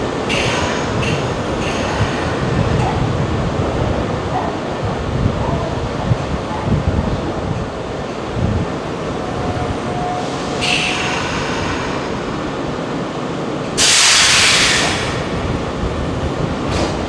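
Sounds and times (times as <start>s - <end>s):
train equipment running: 5.7s - 17.0s
compressed air hissing: 13.8s - 15.3s.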